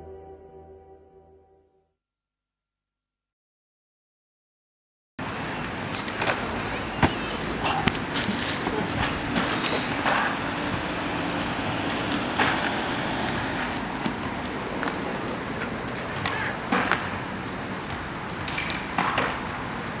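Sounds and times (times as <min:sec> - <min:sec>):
street traffic noise: 0:05.2 - 0:20.0
car driving past: 0:08.8 - 0:17.4.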